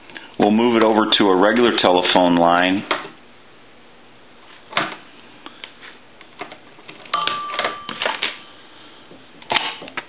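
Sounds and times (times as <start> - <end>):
telephone ringing tone: 7.1 - 8.3.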